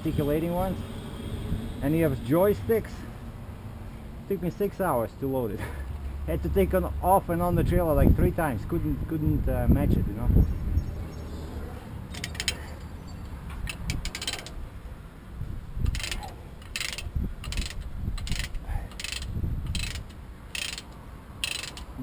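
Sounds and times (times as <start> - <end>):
ratchet binder pawl clicking: 12.1 - 12.6, 13.2 - 14.6, 15.8 - 22.0.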